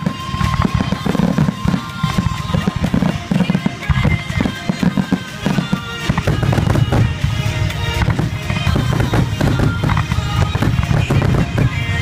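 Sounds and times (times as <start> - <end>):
firework shells bursting: 0.0 - 12.0
music: 0.0 - 12.0.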